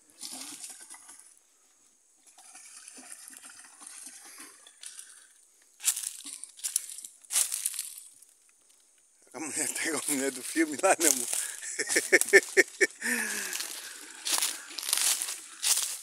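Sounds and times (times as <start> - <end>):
leaves and brush rustling: 5.8 - 16.0.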